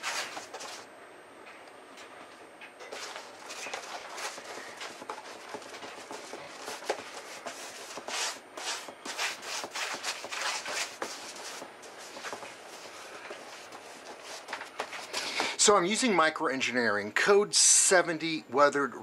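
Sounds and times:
paintbrush scrubbing paint: 0:03.0 - 0:15.2.

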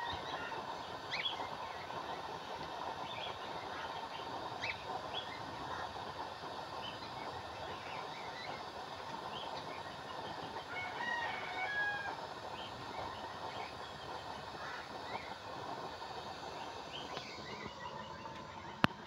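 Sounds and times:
stove burner and fan rushing: 0:00.0 - 0:19.0
rooster crowing: 0:10.7 - 0:12.3.

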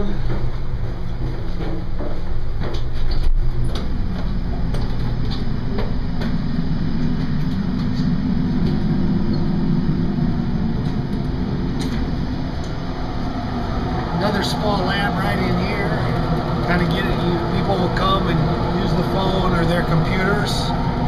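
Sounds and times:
footsteps on stairs: 0:00.0 - 0:06.5
engine rumble below decks: 0:00.0 - 0:21.0.

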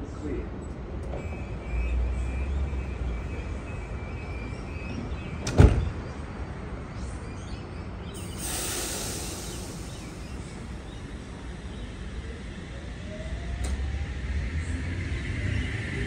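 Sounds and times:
train doors closing thud: 0:05.4 - 0:06.0
hissing air from train: 0:08.2 - 0:12.1.

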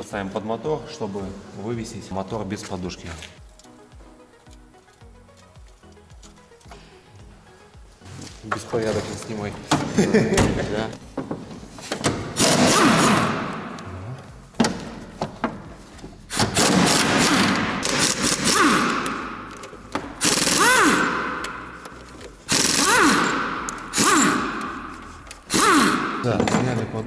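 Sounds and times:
pneumatic impact wrench hammering: 0:11.8 - 0:13.8, 0:16.3 - 0:26.6.

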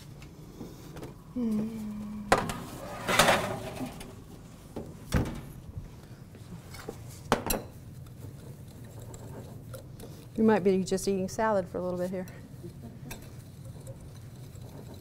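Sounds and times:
metal baking tray clattering: 0:02.9 - 0:04.1.

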